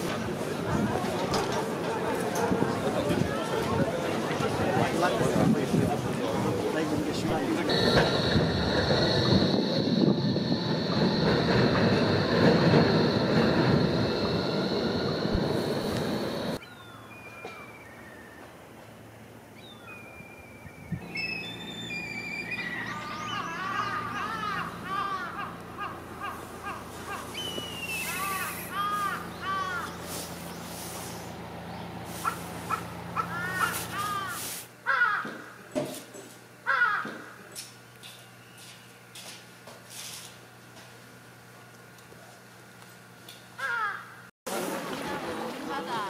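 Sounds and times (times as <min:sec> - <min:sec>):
tram wheels rumbling on track: 0:00.0 - 0:16.6
steady low hum: 0:07.0 - 0:16.6
thin high whine: 0:07.3 - 0:16.6
crows cawing: 0:23.6 - 0:27.2, 0:28.8 - 0:30.0, 0:33.2 - 0:35.5, 0:36.6 - 0:37.4, 0:43.6 - 0:44.2.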